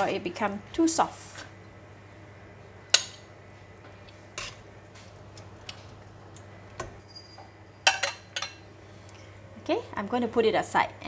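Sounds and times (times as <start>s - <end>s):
metal spoon clinking on pot: 7.3s - 8.6s.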